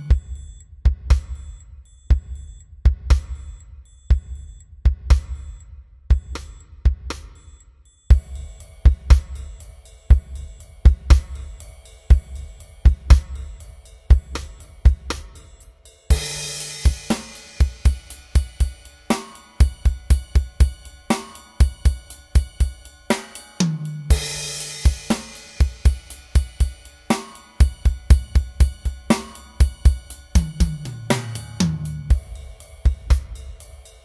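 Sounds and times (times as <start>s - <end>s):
drum kit beat: 0.0s - 34.0s
cymbal crash: 8.1s - 34.0s
bass line: 30.3s - 32.4s.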